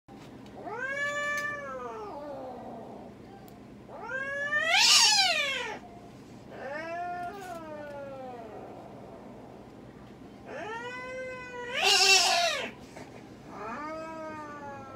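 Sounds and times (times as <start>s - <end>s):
cat yowling: 0.6s - 3.0s, 3.9s - 5.8s, 10.5s - 12.8s.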